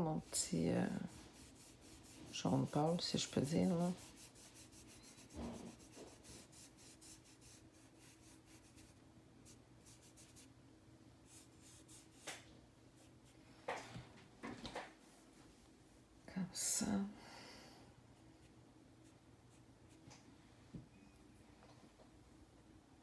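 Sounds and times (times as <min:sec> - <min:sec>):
sponge rubbing on paper: 0:00.2 - 0:10.5, 0:11.3 - 0:12.3.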